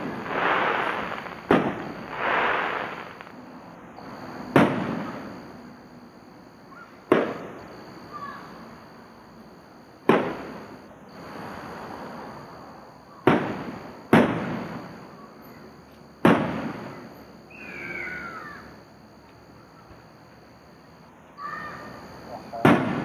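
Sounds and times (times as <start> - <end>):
fireworks bursting: 0.0 - 5.8, 6.9 - 8.6, 9.9 - 12.5, 13.2 - 15.2, 16.2 - 17.7, 21.9 - 23.0.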